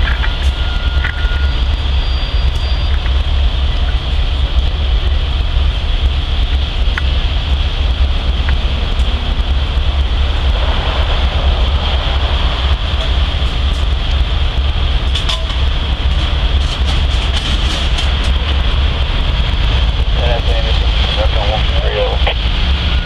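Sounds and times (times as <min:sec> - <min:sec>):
diesel engine idling: 0:00.0 - 0:23.0
wind buffeting microphone: 0:00.0 - 0:23.0
high-pitched drone: 0:17.8 - 0:23.0.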